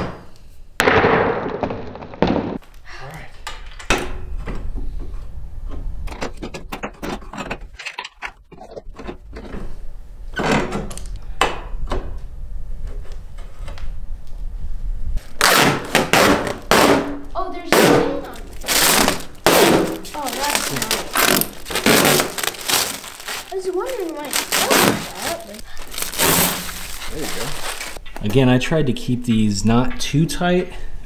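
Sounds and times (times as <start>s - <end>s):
plastic film peeling and crinkling: 18.2s - 28.0s.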